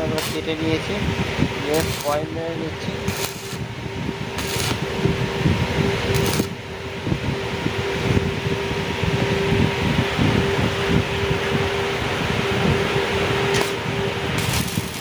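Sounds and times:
sharp welding cracks: 0.0s - 0.6s, 1.6s - 2.3s, 3.0s - 3.6s, 4.4s - 4.8s, 6.1s - 6.6s, 13.5s - 15.0s
welding arc crackling: 0.0s - 5.4s, 6.0s - 6.6s, 13.4s - 15.0s
welder hum: 0.0s - 15.0s.

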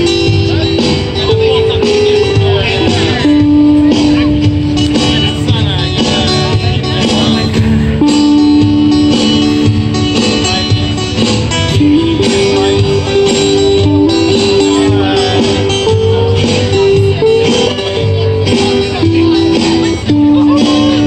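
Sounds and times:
acoustic guitars strummed: 0.0s - 21.0s
melody of long held notes: 0.0s - 21.0s.

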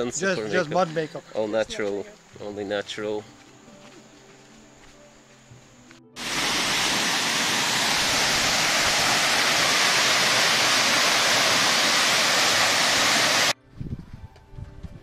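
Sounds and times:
waterfall rushing into pool: 6.2s - 13.6s.

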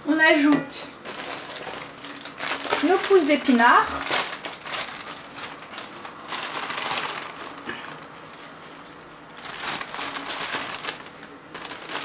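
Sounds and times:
spinach leaves crinkling: 1.0s - 12.0s.

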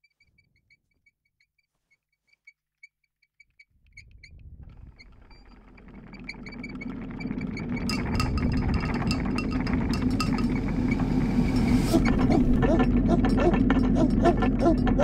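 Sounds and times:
train rumbling on tracks: 4.1s - 15.0s.

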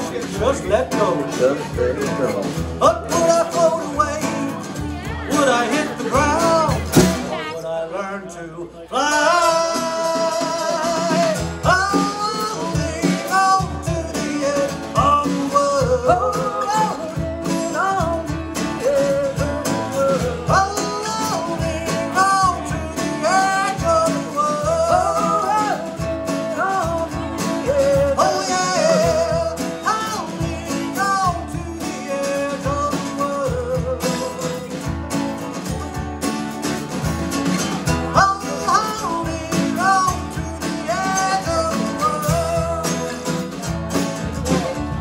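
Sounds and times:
drum kit: 0.0s - 7.5s, 9.1s - 45.0s
acoustic guitars: 0.0s - 45.0s
sliding lead melody: 9.1s - 45.0s.

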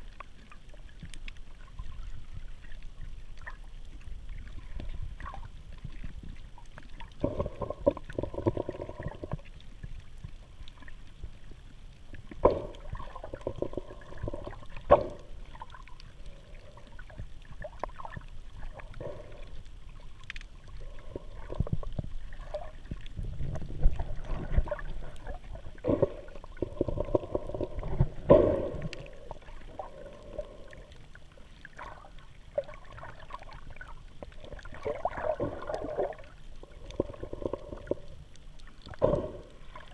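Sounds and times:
faint crackling clicks: 0.0s - 39.9s
muffled underwater water sloshing: 0.0s - 39.9s.

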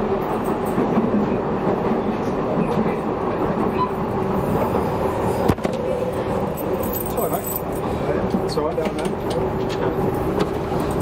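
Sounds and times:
train wheels and motor: 0.0s - 11.0s
passing train thump: 4.5s - 6.5s.

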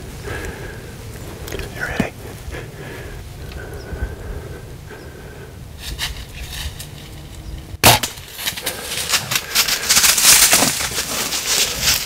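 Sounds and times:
bow shot crack: 7.8s - 8.4s
deer crashing through dry leaves: 7.8s - 12.0s.

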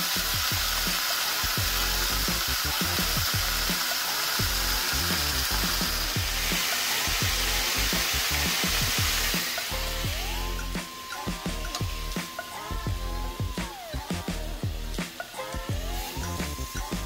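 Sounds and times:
chicken sizzling in oil: 0.0s - 17.0s.

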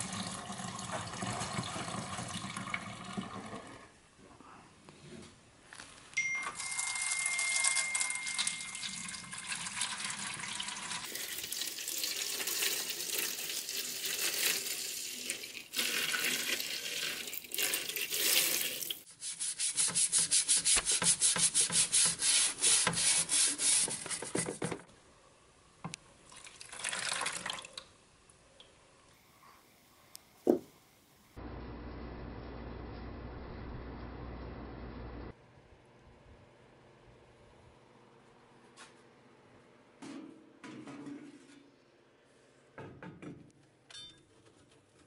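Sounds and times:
water pouring into a metal pan: 7.0s - 19.0s, 26.3s - 27.8s
tool scrubbed in water: 15.8s - 24.7s.

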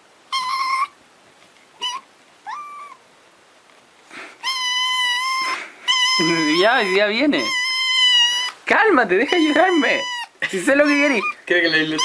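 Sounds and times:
kitten meowing: 0.3s - 1.0s, 1.8s - 3.0s, 4.4s - 8.6s, 9.2s - 12.0s.

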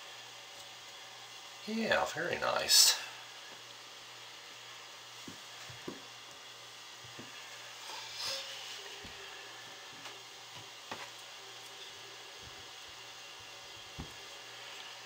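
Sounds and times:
low steady hiss: 0.0s - 15.0s
brief scrape: 7.8s - 8.8s.

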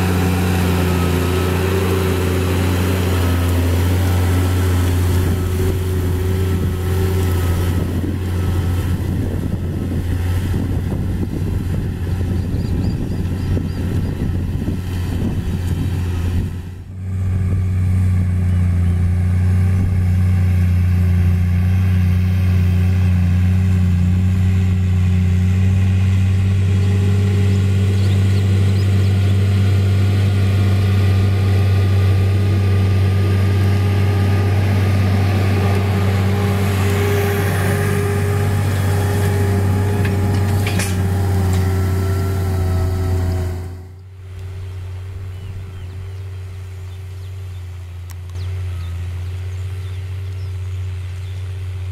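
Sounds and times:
tractor diesel engine under load: 0.0s - 51.9s.

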